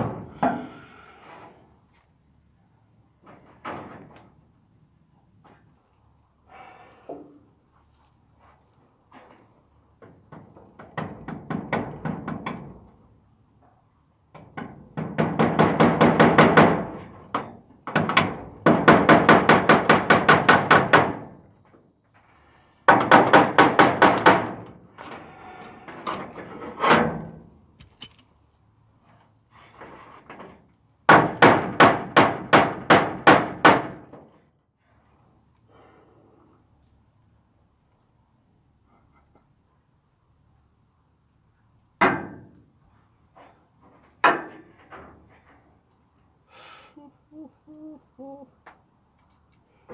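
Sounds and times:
hammer striking wooden frame: 10.8 - 12.6, 14.6 - 17.1, 17.9 - 21.3, 22.9 - 24.6, 31.1 - 34.2, 42.0 - 42.6.

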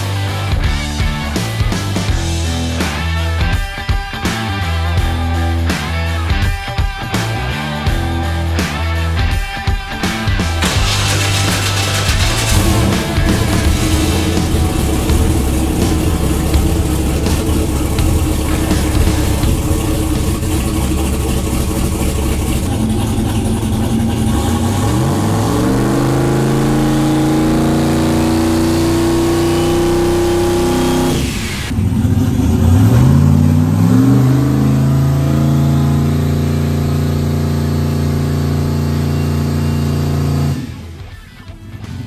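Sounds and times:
car engine revving: 9.9 - 41.2.

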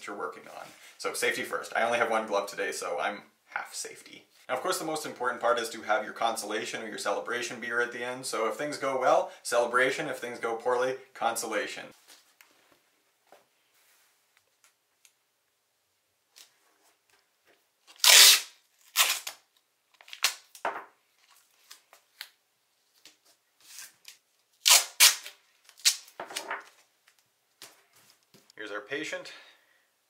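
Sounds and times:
masking tape ripping: 17.9 - 20.6, 23.7 - 26.2.

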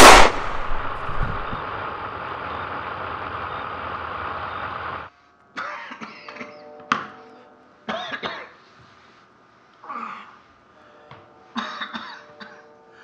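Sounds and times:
gunshot: 0.0 - 1.5.

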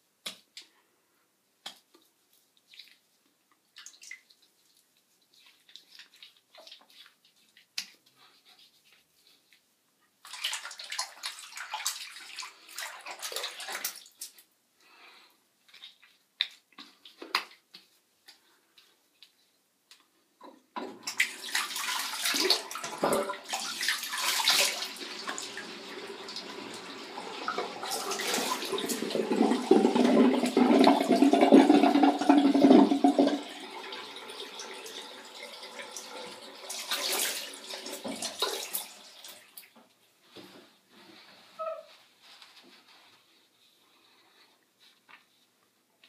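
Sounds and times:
tap water running into sink: 20.8 - 39.4.

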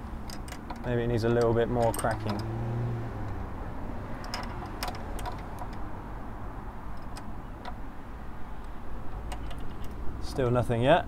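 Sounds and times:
spanner metallic clicks: 0.2 - 2.6, 4.1 - 6.0, 6.8 - 10.3.

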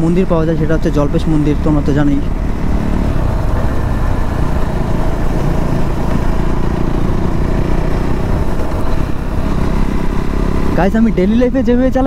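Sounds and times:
motorcycle engine running: 0.0 - 12.0
wind rushing over microphone: 2.3 - 10.9.

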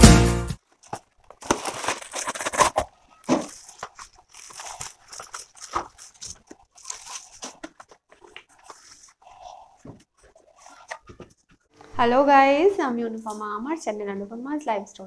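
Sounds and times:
plastic packaging crinkling: 0.6 - 9.2.

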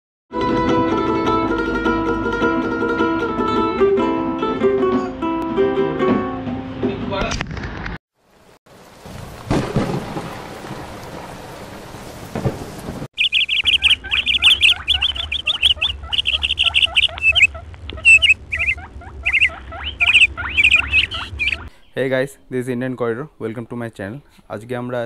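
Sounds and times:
rain hiss: 8.2 - 13.6
thunder rumbles: 8.7 - 21.7
birds chirping: 12.4 - 23.4.

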